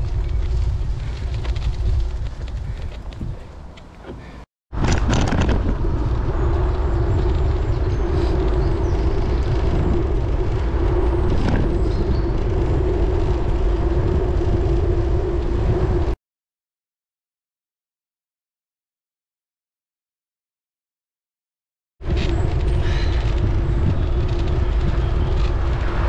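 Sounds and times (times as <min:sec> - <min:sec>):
bicycle road noise: 0:00.0 - 0:16.2, 0:22.0 - 0:26.0
wind rumble on microphone: 0:00.0 - 0:16.2, 0:22.0 - 0:26.0.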